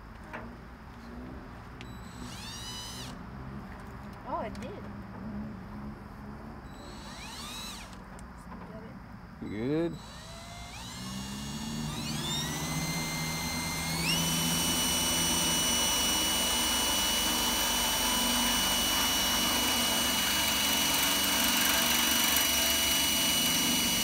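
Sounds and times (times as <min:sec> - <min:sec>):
electric drill whining: 0:01.8 - 0:03.2, 0:06.7 - 0:08.0, 0:09.4 - 0:24.0.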